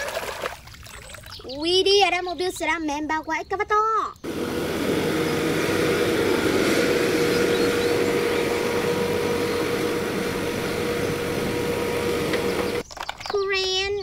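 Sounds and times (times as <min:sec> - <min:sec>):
constant hum: 0:00.7 - 0:14.0
excavator diesel engine running: 0:04.2 - 0:12.8.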